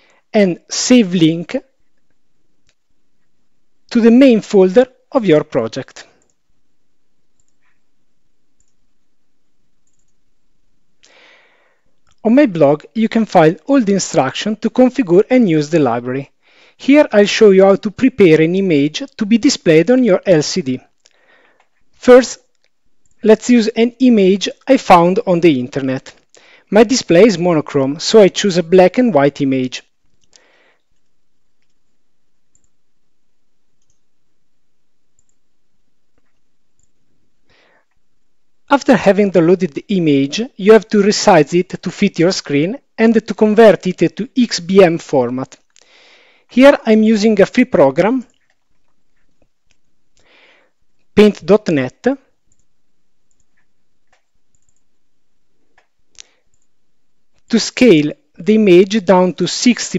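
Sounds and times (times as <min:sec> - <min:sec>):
low steady hiss: 0:00.0 - 0:59.9
computer mouse clicks: 0:07.3 - 0:07.9, 0:08.6 - 0:08.8, 0:09.8 - 0:10.2, 0:30.0 - 0:32.8, 0:33.8 - 0:34.1, 0:35.2 - 0:35.4, 0:36.1 - 0:37.0, 0:53.3 - 0:54.9, 0:55.7 - 0:56.7.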